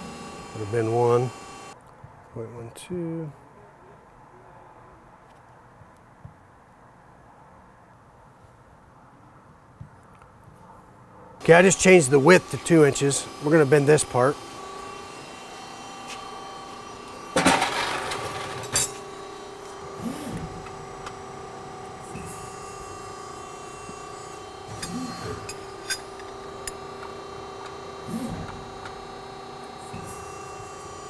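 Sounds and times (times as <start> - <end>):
press brake humming: 0.0 - 1.8, 11.4 - 31.0.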